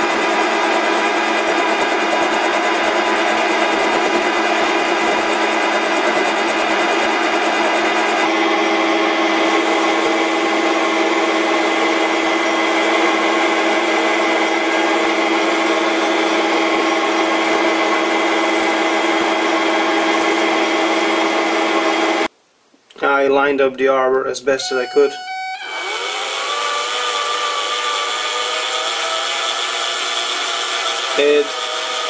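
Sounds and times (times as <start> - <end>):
metal lathe whining: 0.0 - 22.3, 24.6 - 32.0.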